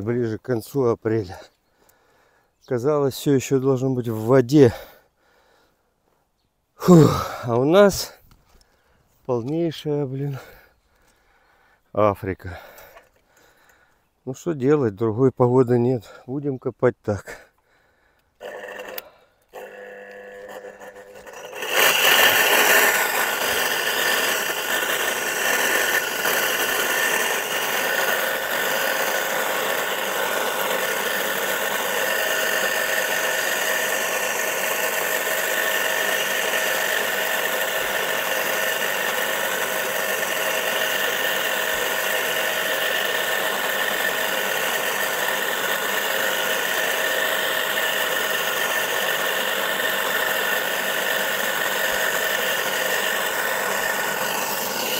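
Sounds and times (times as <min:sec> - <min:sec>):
electric motor running: 0:18.4 - 0:54.9.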